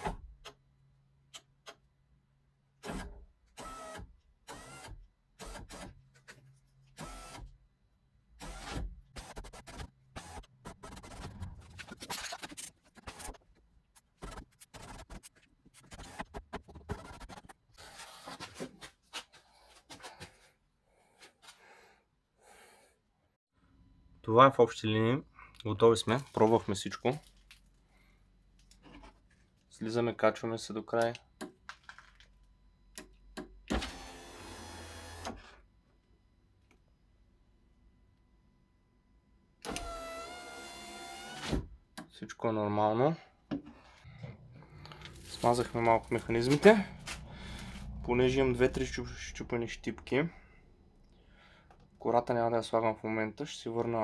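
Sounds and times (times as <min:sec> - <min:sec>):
electric window motor: 0:33.7 - 0:35.6.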